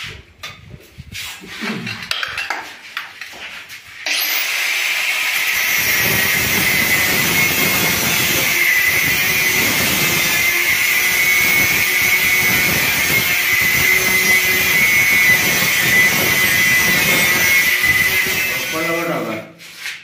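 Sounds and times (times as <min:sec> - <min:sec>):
angle grinder cutting metal pipe: 0:04.0 - 0:19.4.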